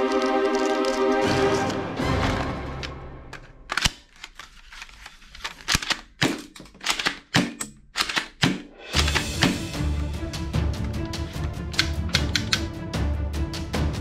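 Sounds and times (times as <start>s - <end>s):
background music: 0.0s - 4.2s, 8.7s - 14.0s
plastic toy rifle clicks: 3.4s - 9.5s, 11.7s - 12.7s.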